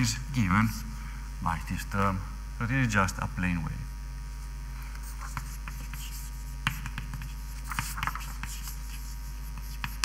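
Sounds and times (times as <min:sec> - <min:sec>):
electrical mains hum: 0:00.0 - 0:10.0
pen writing taps and scratches: 0:05.2 - 0:09.0, 0:09.6 - 0:10.0.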